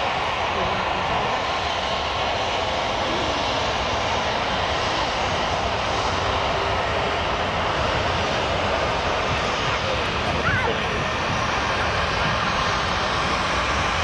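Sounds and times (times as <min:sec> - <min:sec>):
jet engines running: 0:00.0 - 0:14.0.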